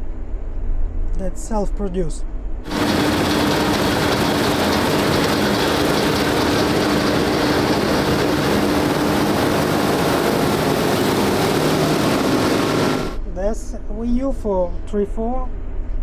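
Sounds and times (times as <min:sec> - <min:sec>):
combine harvester running: 0:02.7 - 0:13.2.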